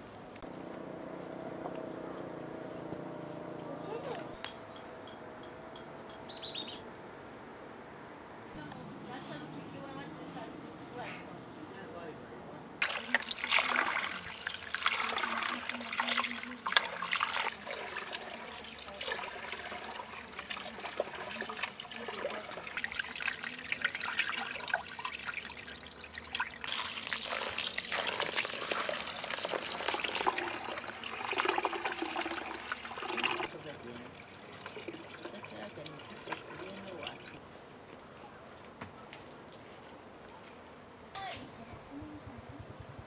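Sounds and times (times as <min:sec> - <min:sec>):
water running and splashing: 0:12.8 - 0:37.4.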